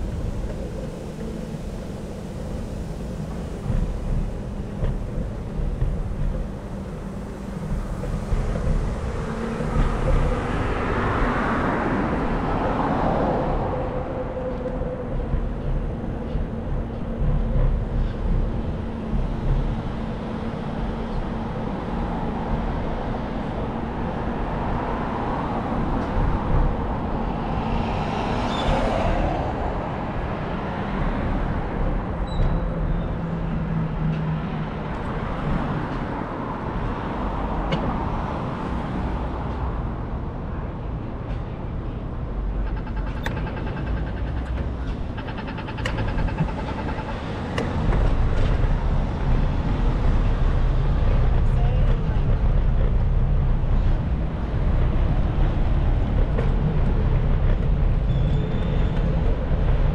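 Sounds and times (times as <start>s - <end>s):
cars passing: 0.0s - 59.9s
low traffic rumble: 0.0s - 59.9s.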